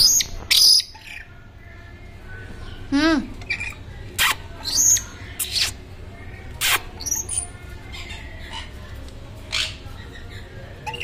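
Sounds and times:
parrots screeching: 0:06.5 - 0:08.9, 0:09.5 - 0:11.0.

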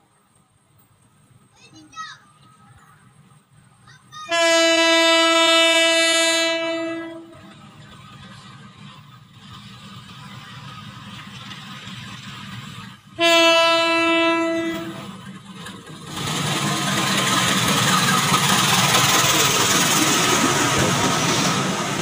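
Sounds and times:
train passing on rails: 0:00.0 - 0:22.0
deep locomotive horn blast: 0:04.3 - 0:07.5, 0:13.2 - 0:15.1.

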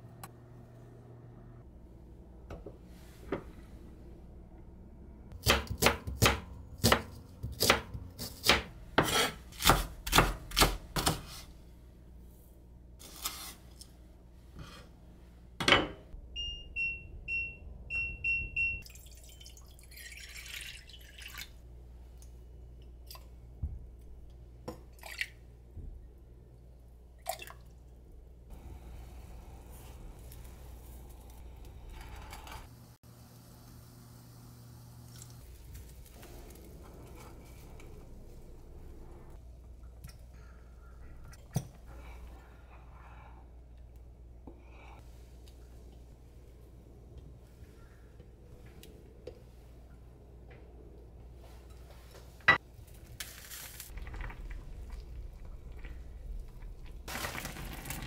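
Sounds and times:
kitchen appliance beeps: 0:16.4 - 0:18.8.

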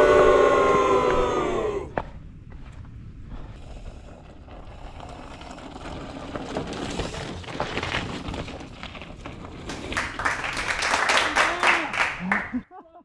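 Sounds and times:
tyres crunching on rock and gravel: 0:01.9 - 0:10.0
bike rattling: 0:02.0 - 0:10.4.

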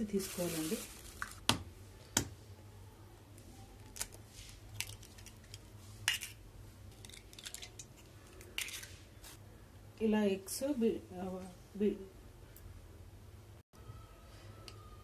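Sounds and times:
eggshells cracking on metal bowl: 0:03.8 - 0:08.9.

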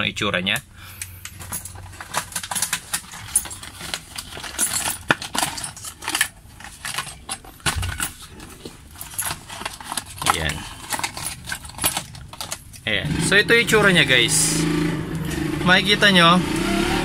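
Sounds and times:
packaging rustling and scraping: 0:01.3 - 0:12.8.

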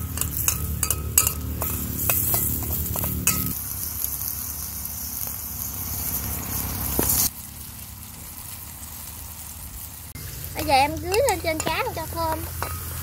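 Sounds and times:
utensil clinking against pan: 0:00.0 - 0:03.6, 0:10.6 - 0:13.0
oil sizzling in a pan: 0:00.0 - 0:13.0.

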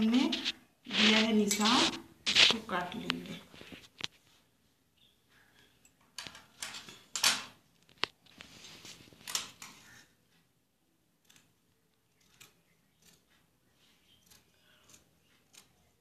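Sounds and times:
cloth rustling: 0:00.0 - 0:04.7, 0:07.7 - 0:09.9.

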